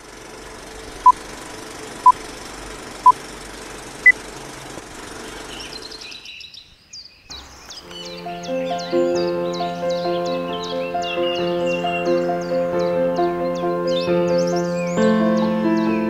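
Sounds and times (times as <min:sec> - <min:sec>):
small birds chirping: 0:00.2 - 0:16.0.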